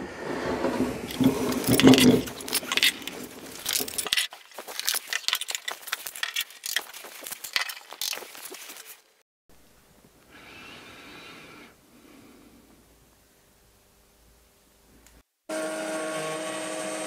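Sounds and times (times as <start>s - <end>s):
metal clamp being set: 1.1s - 6.8s
wooden clamps clicking and knocking: 1.1s - 8.8s.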